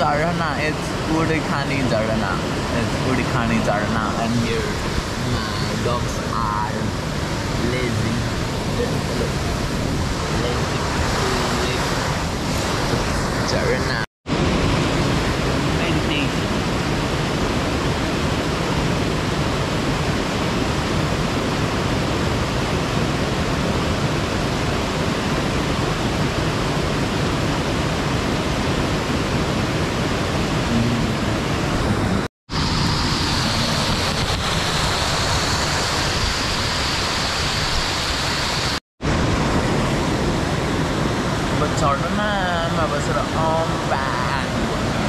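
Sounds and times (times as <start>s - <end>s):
waterfall rushing: 0.0s - 16.6s, 30.1s - 45.0s.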